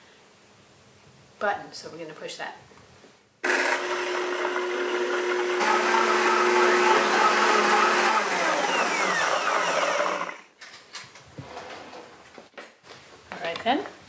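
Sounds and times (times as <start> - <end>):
blender motor whine: 3.4 - 10.5.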